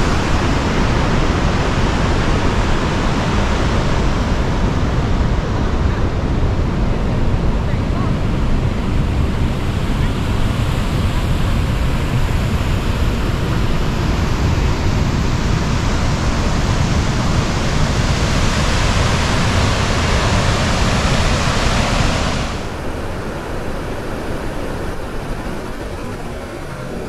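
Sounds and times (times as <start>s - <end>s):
wind rumbling on microphone: 0.0s - 27.0s
river rapids rushing: 18.4s - 27.0s.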